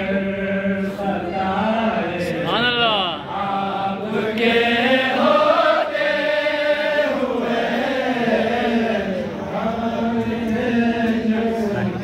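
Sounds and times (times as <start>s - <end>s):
man chanting unaccompanied: 0.0s - 5.0s.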